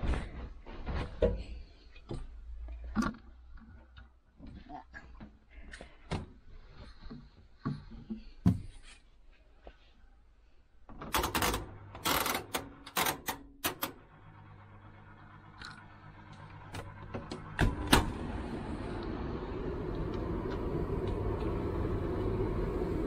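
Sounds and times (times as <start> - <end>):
low steady hum: 6.7 - 23.0.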